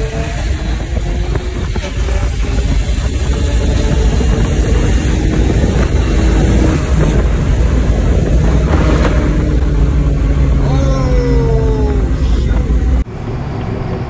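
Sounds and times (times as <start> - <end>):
car engine running: 0.0 - 14.0
road and wind noise: 0.0 - 14.0.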